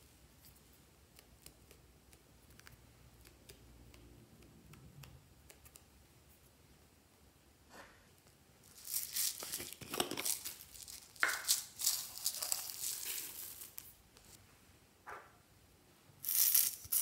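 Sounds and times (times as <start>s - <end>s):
sequins pattering into dish: 8.7s - 13.9s, 16.2s - 17.0s.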